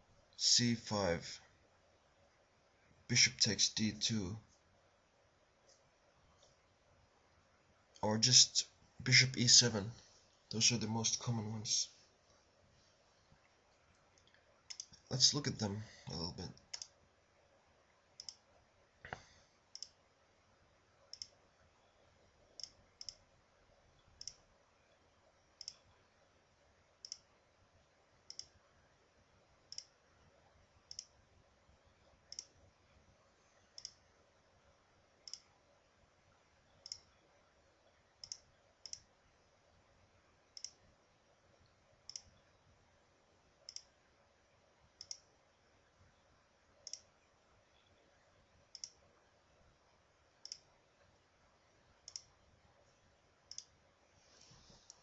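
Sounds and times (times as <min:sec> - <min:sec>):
computer mouse clicking: 0:14.0 - 0:15.0, 0:16.6 - 0:17.0, 0:18.2 - 0:18.4, 0:19.1 - 0:20.0, 0:21.1 - 0:21.4, 0:22.6 - 0:23.2, 0:24.0 - 0:24.4, 0:25.6 - 0:25.9, 0:27.0 - 0:27.3, 0:28.3 - 0:28.6, 0:29.7 - 0:30.0, 0:30.9 - 0:31.2, 0:32.3 - 0:32.6, 0:33.7 - 0:34.0, 0:35.2 - 0:35.5, 0:36.8 - 0:37.1, 0:38.2 - 0:39.1, 0:40.5 - 0:40.8, 0:42.0 - 0:42.4, 0:43.6 - 0:44.0, 0:45.0 - 0:45.3, 0:46.8 - 0:47.1, 0:48.7 - 0:49.0, 0:50.4 - 0:50.7, 0:52.0 - 0:52.4, 0:53.5 - 0:53.8.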